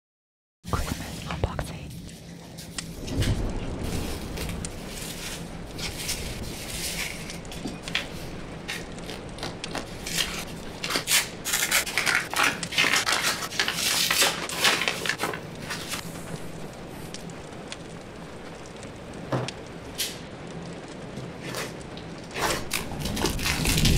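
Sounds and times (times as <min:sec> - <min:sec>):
wrapping paper crinkling: 0:02.0 - 0:18.6, 0:21.4 - 0:23.9.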